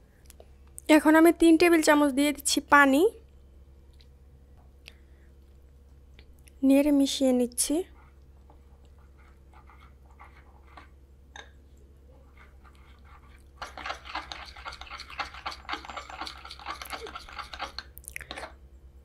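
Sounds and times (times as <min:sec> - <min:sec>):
metal spoon scraping glass bowl: 0:12.3 - 0:17.8.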